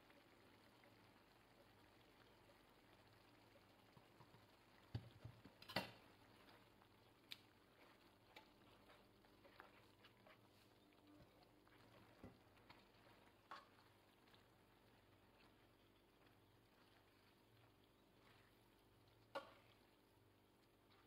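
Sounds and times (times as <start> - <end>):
tongs tapping frying pan: 19.2 - 19.6.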